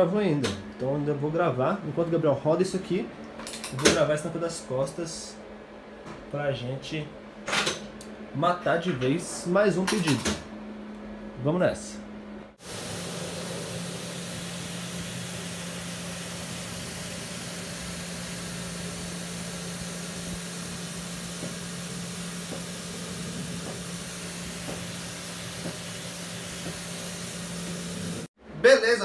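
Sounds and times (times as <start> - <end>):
pressure washer humming: 12.6 - 28.3
water spray hissing: 12.6 - 28.3.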